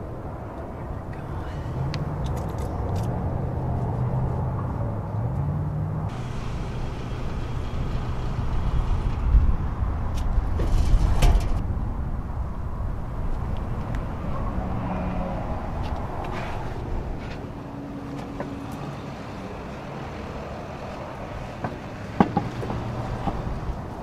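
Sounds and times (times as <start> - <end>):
road traffic rumble: 0.0 - 24.0
compressed air hissing into tire: 6.1 - 9.3.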